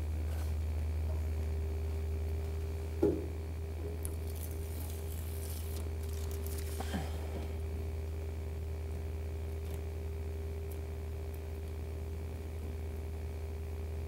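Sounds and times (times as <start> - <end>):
steady low hum: 0.0 - 14.0
tape backing peeling crackle: 4.0 - 7.1, 9.5 - 10.0.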